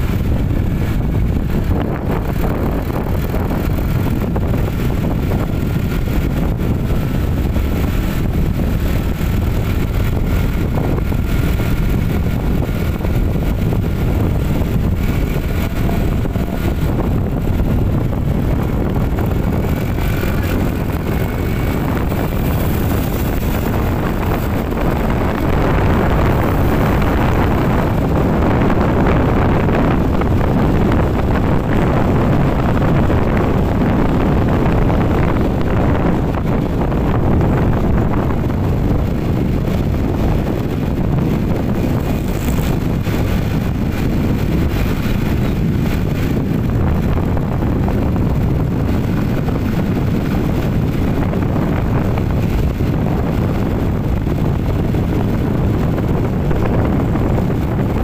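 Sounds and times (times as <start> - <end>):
faint whine: 0.0 - 30.0
vehicle road and engine noise: 0.0 - 58.0
wind buffeting microphone: 0.0 - 58.0.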